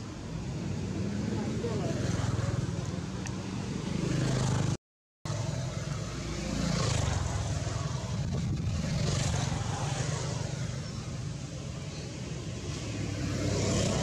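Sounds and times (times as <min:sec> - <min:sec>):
vehicle engine rumbling: 0:05.3 - 0:14.0.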